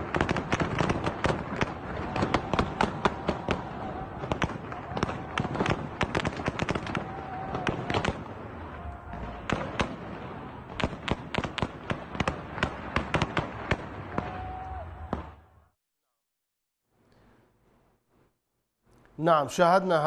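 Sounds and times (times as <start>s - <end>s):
heavy gunfire: 0.0s - 15.4s.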